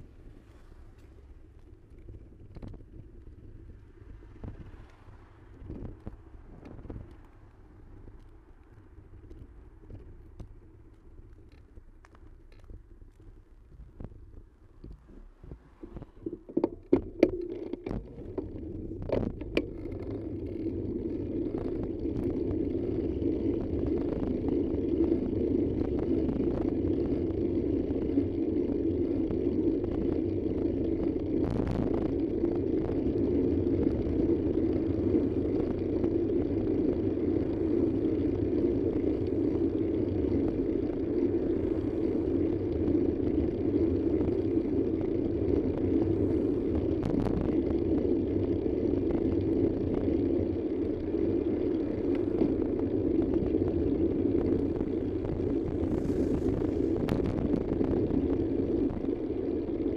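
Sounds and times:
vehicle engine and road rumble: 0:00.0 - 0:59.9
sharp clicks and knocks: 0:14.8 - 0:20.6.

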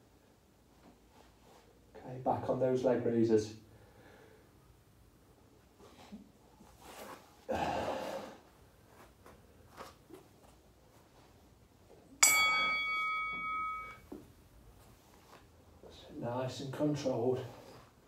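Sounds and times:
bright metallic ding: 0:12.2 - 0:14.2.

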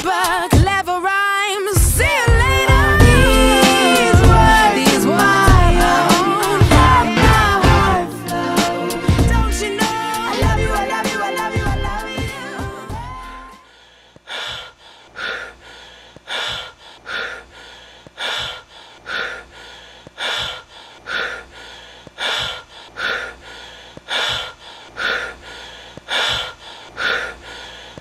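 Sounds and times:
person breathing heavily: 0:13.6 - 0:28.0.

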